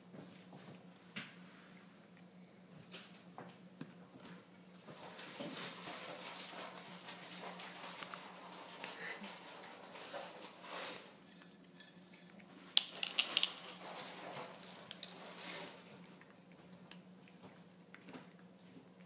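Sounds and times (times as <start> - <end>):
puppy eating dry kibble: 3.9 - 19.0
kibble clicking on plastic: 12.7 - 15.2.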